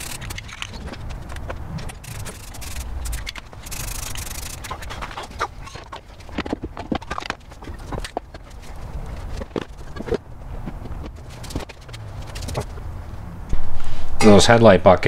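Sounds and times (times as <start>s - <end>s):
spray paint can hissing: 0.0s - 0.8s, 1.9s - 4.9s
metal parts clicking and tapping: 0.0s - 10.2s.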